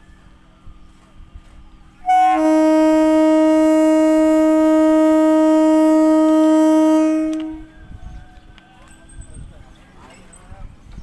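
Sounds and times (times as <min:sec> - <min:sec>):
train air horn blast: 0:02.0 - 0:07.9.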